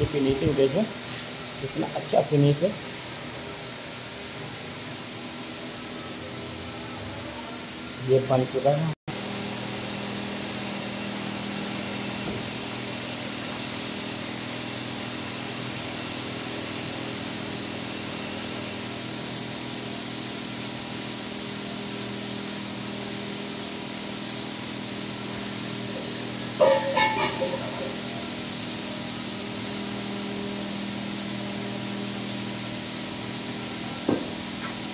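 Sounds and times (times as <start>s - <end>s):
water hissing on hot metal: 15.2s - 17.4s, 19.2s - 20.5s.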